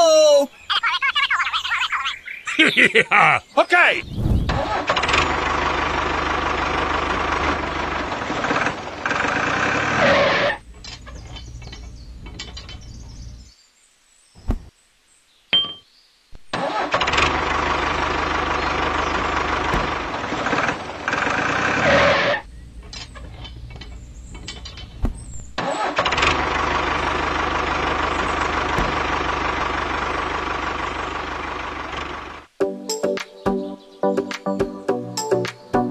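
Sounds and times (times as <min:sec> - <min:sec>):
tractor engine running: 0:04.5 - 0:13.5, 0:16.5 - 0:32.6.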